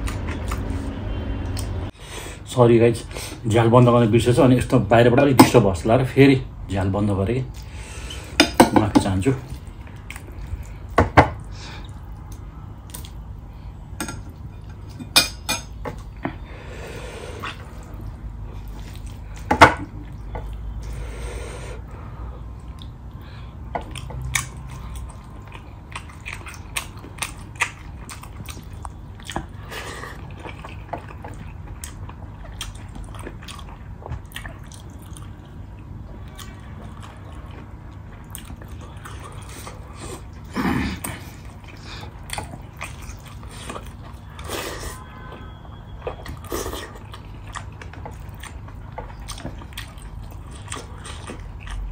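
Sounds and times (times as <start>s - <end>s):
chewing and mouth sounds: 9.4s - 13.4s, 17.4s - 21.0s, 22.4s - 51.9s.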